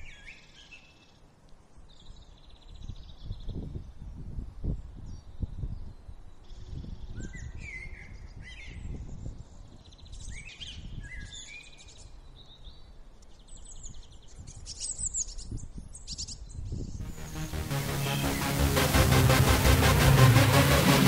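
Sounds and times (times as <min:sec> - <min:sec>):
wind rumble on microphone: 0:02.0 - 0:11.4, 0:13.7 - 0:17.0
small birds chirping: 0:04.8 - 0:17.0
loud electronic music: 0:17.0 - 0:21.0.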